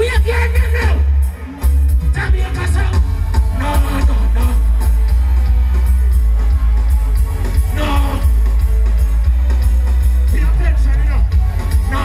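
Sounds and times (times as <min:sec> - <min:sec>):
booming bass line: 0:00.0 - 0:12.0
live reggae band playing: 0:00.0 - 0:12.0.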